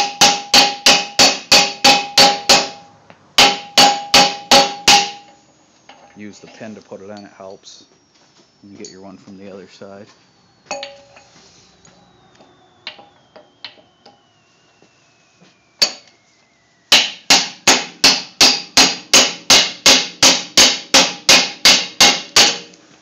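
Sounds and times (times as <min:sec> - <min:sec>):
hammer striking steel pin: 0:00.0 - 0:06.0, 0:15.8 - 0:16.1, 0:16.9 - 0:22.7.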